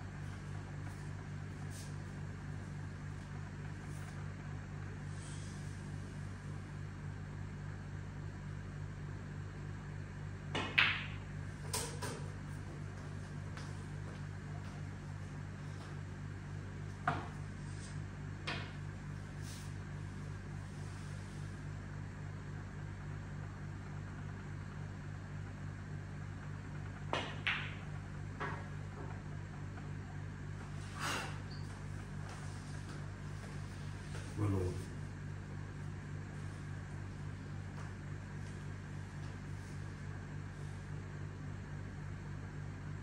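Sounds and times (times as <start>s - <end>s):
steady low hum: 0.0s - 43.0s
cue tip tapping ball: 10.6s - 12.3s, 27.1s - 29.2s
snooker balls clacking: 27.1s - 28.8s.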